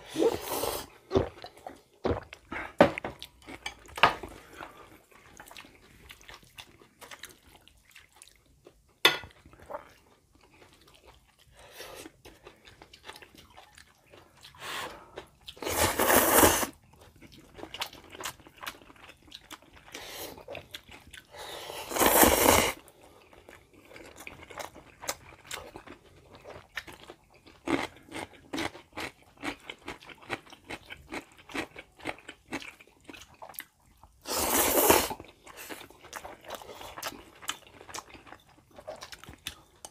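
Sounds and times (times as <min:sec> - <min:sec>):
noodle slurps: 0:00.0 - 0:01.0, 0:15.6 - 0:16.8, 0:21.7 - 0:22.8, 0:34.2 - 0:35.2
wet chewing with clicks: 0:04.6 - 0:14.6, 0:23.3 - 0:34.2, 0:35.2 - 0:39.9.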